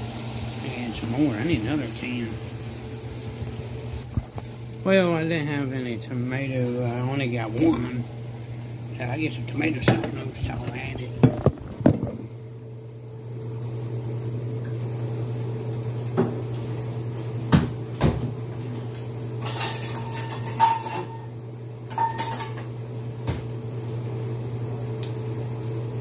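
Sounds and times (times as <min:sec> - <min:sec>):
metal utensils clinking: 0:19.4 - 0:21.3, 0:21.9 - 0:22.6.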